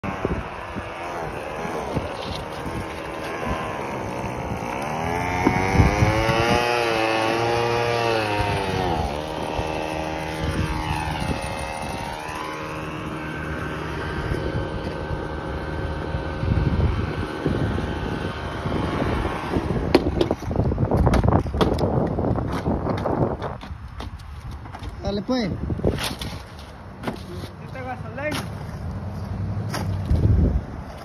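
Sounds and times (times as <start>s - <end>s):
passing engine drone: 0.0s - 19.9s.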